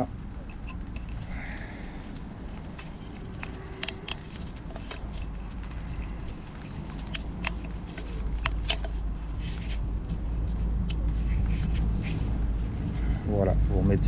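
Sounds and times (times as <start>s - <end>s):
low background rumble: 0.0s - 14.0s
plastic and rubber clicks: 2.7s - 5.2s, 6.6s - 9.0s.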